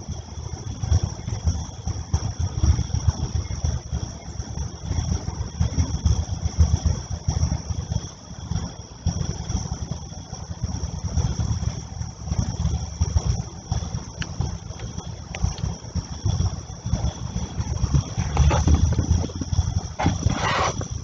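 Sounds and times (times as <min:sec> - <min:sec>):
night insects chirring: 0:00.0 - 0:21.0
wind buffeting microphone: 0:10.6 - 0:21.0.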